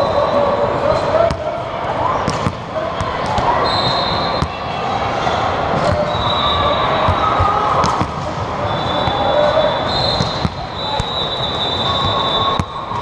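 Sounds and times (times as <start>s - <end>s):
background chatter: 0.0s - 13.0s
volleyballs smacking the floor: 2.2s - 3.5s, 5.7s - 6.1s, 7.1s - 8.3s, 10.2s - 11.2s, 12.0s - 13.0s.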